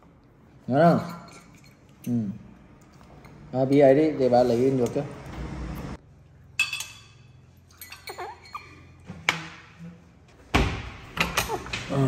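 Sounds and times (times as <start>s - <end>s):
glassware clinking on glass table: 6.6s - 8.6s.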